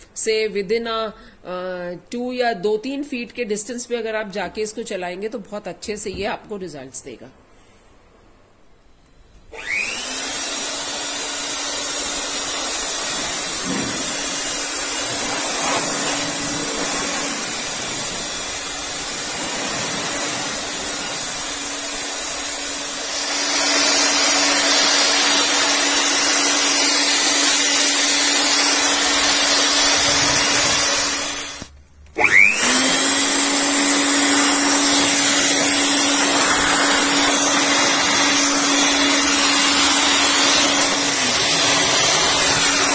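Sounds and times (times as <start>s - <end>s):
electric blower motor whine: 8.9s - 42.9s.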